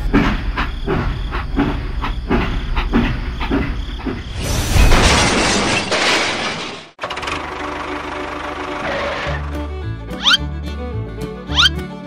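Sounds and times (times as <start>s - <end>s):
crash with a boom: 4.3s - 7.0s.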